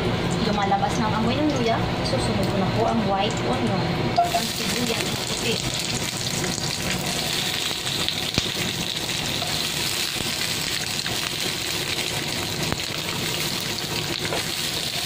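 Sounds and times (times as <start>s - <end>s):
onion sizzling in hot oil: 4.2s - 15.0s.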